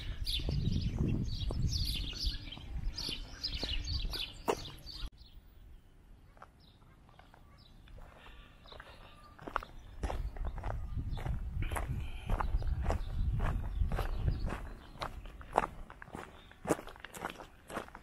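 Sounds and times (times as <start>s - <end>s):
wind rumble on microphone: 0.0s - 4.2s, 10.0s - 15.8s
small birds chirping: 0.0s - 18.0s.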